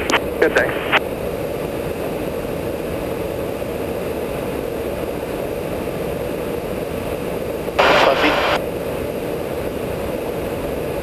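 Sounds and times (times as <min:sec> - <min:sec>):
aircraft cabin rush: 0:07.8 - 0:08.6.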